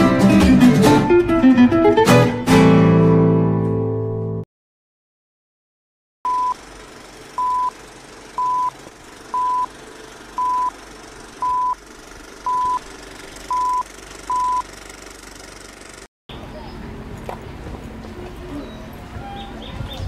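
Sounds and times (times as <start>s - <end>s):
short high countdown beeps: 13.5s - 14.6s.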